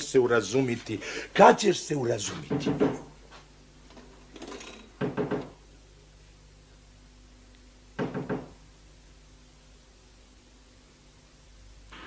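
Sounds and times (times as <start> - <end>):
faint steady hum: 0.0 - 12.0
person breathing: 1.0 - 1.4.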